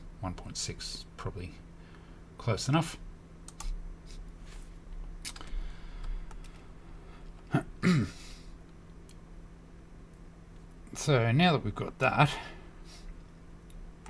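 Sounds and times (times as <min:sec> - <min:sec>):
low electrical hum: 0:00.0 - 0:14.0
man clearing throat: 0:07.5 - 0:08.4.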